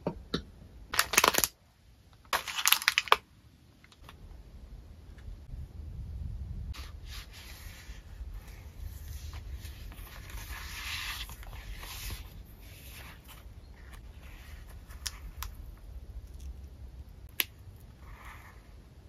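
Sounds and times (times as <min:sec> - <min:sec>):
leather notebook cover rustling: 0:06.8 - 0:15.4
paper pages flipping: 0:08.4 - 0:15.5.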